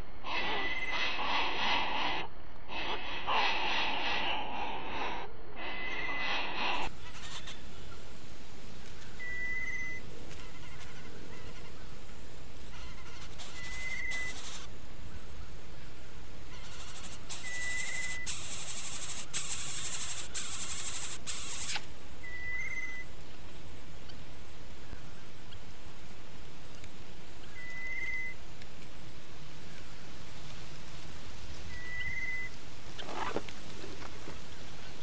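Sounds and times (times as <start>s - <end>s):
loud high hissing: 0.2s - 7.7s, 16.9s - 21.9s.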